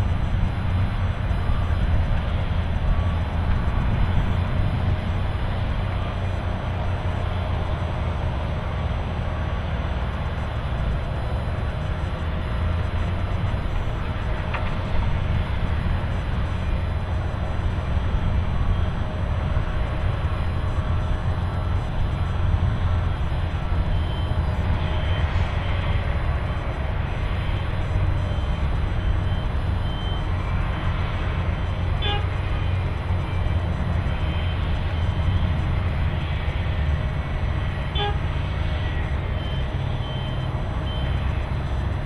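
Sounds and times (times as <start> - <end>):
diesel machine rumbling: 0.0 - 42.0
horn toots: 32.0 - 32.4, 37.9 - 38.3.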